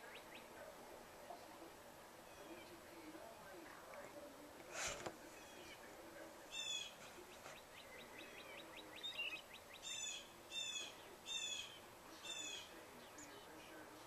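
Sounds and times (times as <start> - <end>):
bird calling: 6.5 - 13.6.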